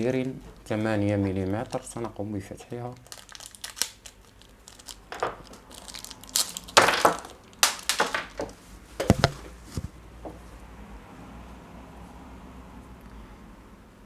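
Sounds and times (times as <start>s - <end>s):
plastic bags crinkling: 0.6s - 8.5s.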